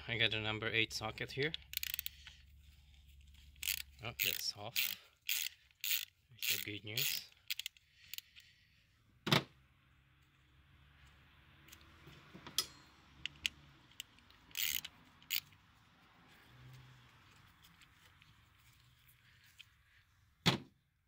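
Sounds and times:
hand ratchet ratcheting: 1.5s - 2.4s, 3.4s - 8.5s, 13.2s - 15.6s.

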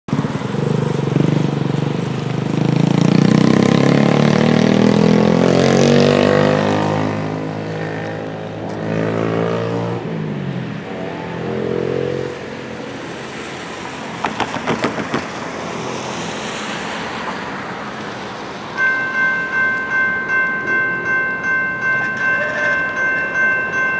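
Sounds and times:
motorcycle passing: 0.1s - 21.1s
vehicle passing: 0.1s - 23.2s
tyre hiss on wet road: 12.3s - 18.7s
knocks: 14.2s - 15.3s.

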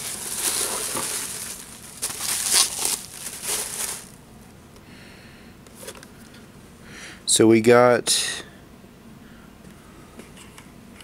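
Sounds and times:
tissue paper rustling: 0.0s - 4.2s.

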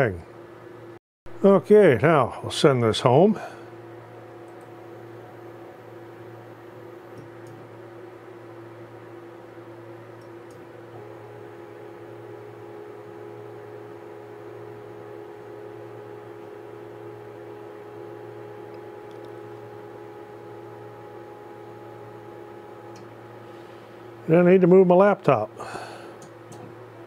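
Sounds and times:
low steady hum: 0.0s - 27.0s
stepper motor whine: 3.8s - 24.5s.

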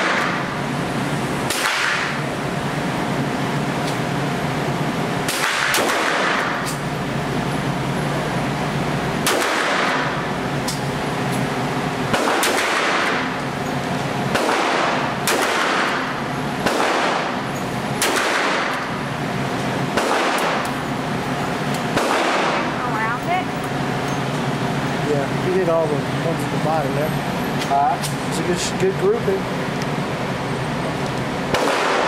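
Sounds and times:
revolver gunshots echoing indoors: 0.0s - 0.5s, 1.4s - 2.3s, 5.2s - 6.9s, 9.1s - 10.9s, 12.0s - 13.4s, 14.2s - 21.0s, 21.9s - 22.8s, 31.5s - 32.0s
steady hum: 0.0s - 32.0s.

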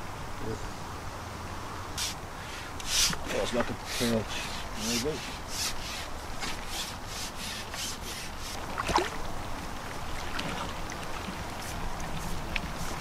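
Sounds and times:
fishing pole swishing: 2.8s - 8.6s.

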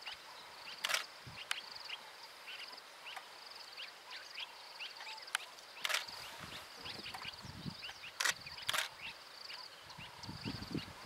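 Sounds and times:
sharp clicks: 0.8s - 1.6s, 5.3s - 6.1s, 8.2s - 8.9s.

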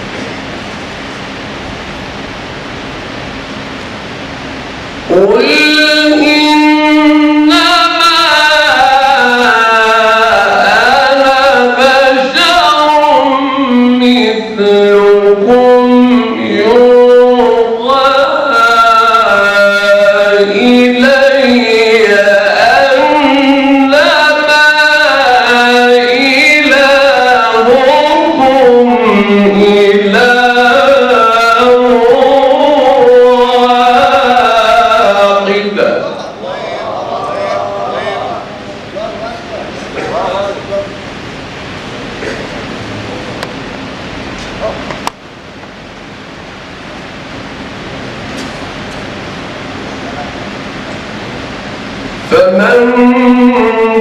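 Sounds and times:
man reciting melodically: 5.0s - 41.0s, 52.2s - 54.0s.

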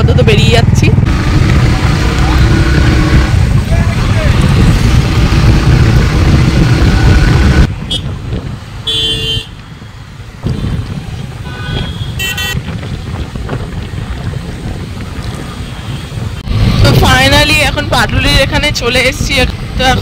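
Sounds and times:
road traffic noise: 0.0s - 20.0s
wind rushing over microphone: 0.0s - 20.0s
vehicle horn toots: 7.8s - 8.2s, 8.8s - 9.6s, 11.4s - 12.6s.

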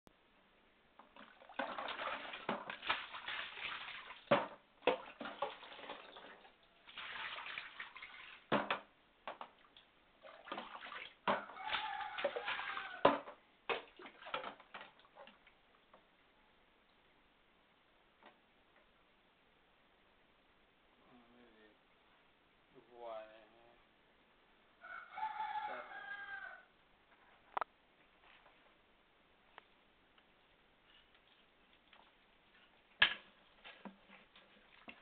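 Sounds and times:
fish splashing in shallow water: 6.8s - 8.5s, 10.3s - 13.0s.

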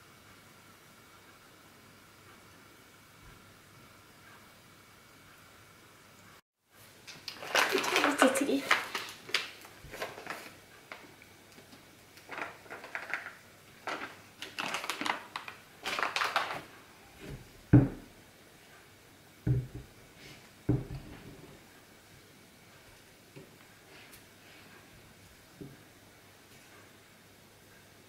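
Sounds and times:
paper packet rustling: 7.0s - 11.1s, 12.2s - 16.8s.

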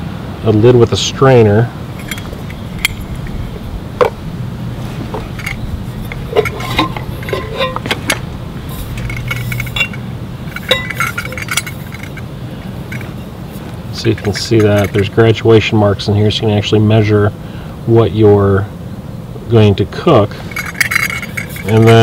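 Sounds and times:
metal pot and lid clinking: 2.0s - 4.2s, 5.1s - 12.2s, 14.2s - 15.1s, 20.5s - 22.0s
metal lid scraping: 2.0s - 15.2s, 20.3s - 22.0s.

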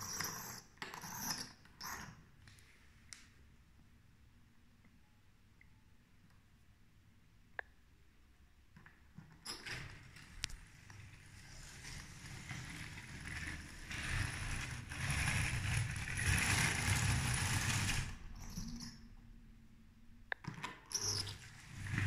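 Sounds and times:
toy train rattling on track: 11.2s - 18.8s.

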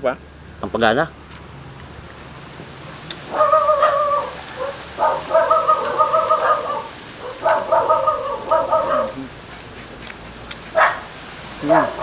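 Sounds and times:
animal wavering calls: 3.2s - 9.4s.

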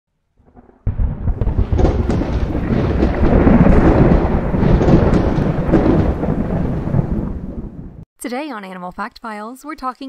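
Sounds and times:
rumbling thunder: 0.4s - 8.0s.

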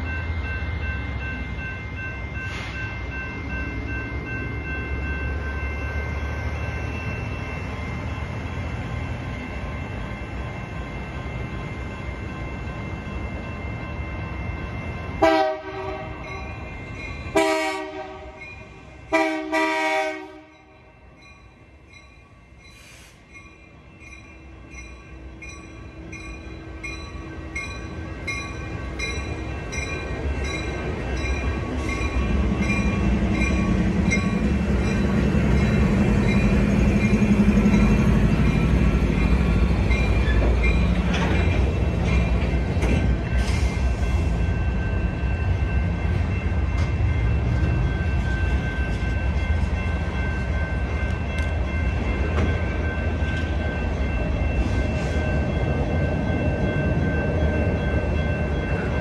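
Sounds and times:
crossing bell ringing: 0.0s - 59.0s
locomotive air horn blasts: 15.2s - 16.2s, 17.4s - 18.4s, 19.1s - 20.5s.

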